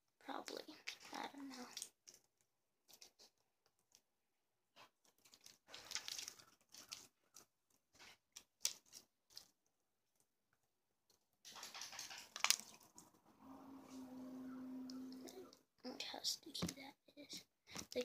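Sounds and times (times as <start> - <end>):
slime squeezed and pulled: 5.2 - 7.1.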